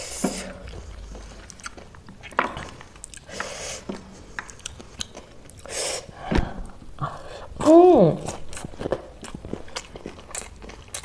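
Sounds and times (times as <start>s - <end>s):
chewing and crunching food: 0.4s - 5.7s, 8.2s - 11.0s.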